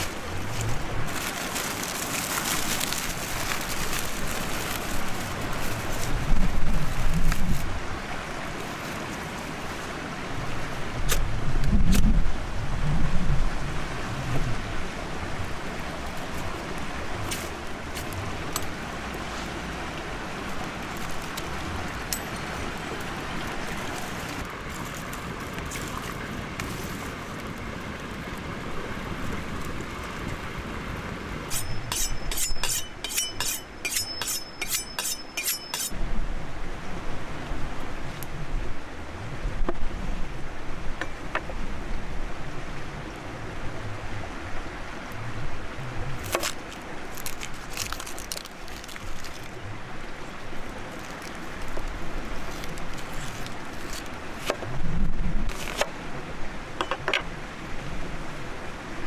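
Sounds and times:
fire hissing and crackling: 0.0 - 7.7.

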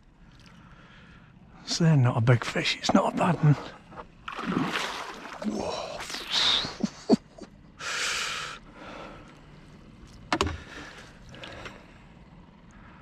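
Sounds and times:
knocks and clicks of fishing gear: 10.2 - 11.8.

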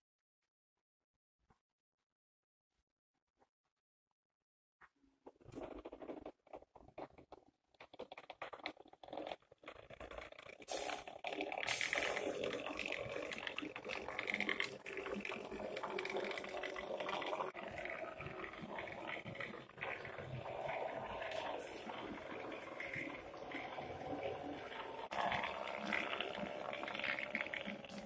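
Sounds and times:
sharp clicks and crackles: 5.3 - 16.8.

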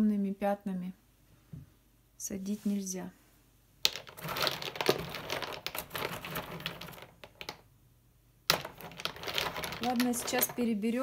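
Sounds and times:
walnuts clattering in a cardboard box: 3.8 - 7.7, 8.5 - 10.7.

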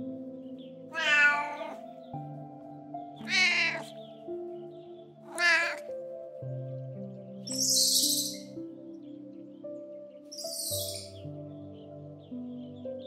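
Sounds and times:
soft music with held notes: 0.0 - 13.0
cat meowing: 0.9 - 1.8, 3.2 - 4.0, 5.2 - 5.9.

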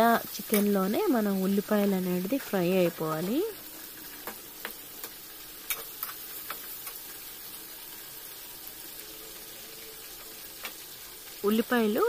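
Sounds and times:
chicken and onions sizzling: 0.0 - 12.0
metal spatula clicking on pan: 0.5 - 0.7.

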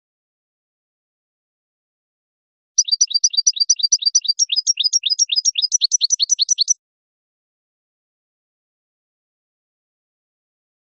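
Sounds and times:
goldfinch singing fast trill: 2.8 - 6.8.

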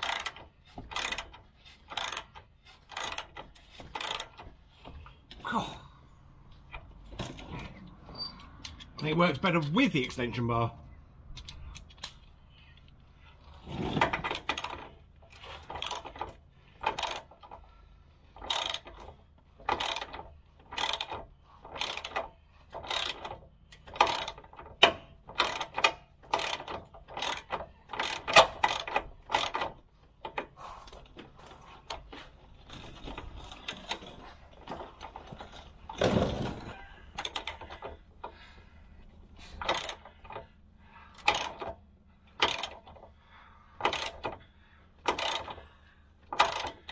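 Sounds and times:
socket ratchet clicking: 0.0 - 4.4, 18.4 - 19.0, 19.6 - 30.6, 39.5 - 40.4, 41.1 - 43.0, 43.8 - 44.4, 45.0 - 45.6, 46.2 - 46.9.

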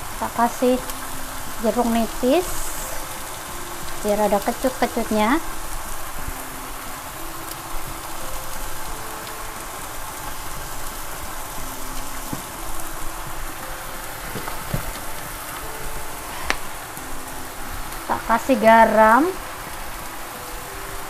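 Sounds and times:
food sizzling in a wok: 0.0 - 21.0.

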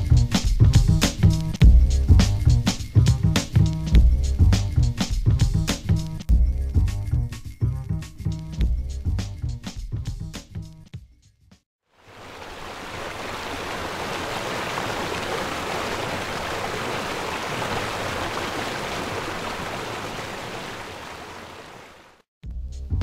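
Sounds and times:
stream rushing over rocks: 12.0 - 22.2.

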